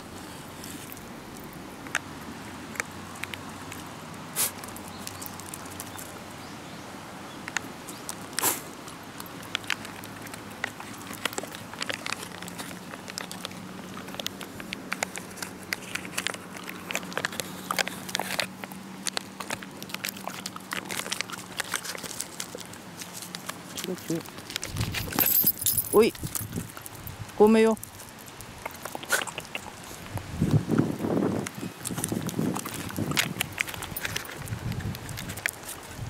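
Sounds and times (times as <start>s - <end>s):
dog claws clicking on concrete: 0.8s - 6.2s, 7.4s - 27.1s, 27.8s - 36.0s.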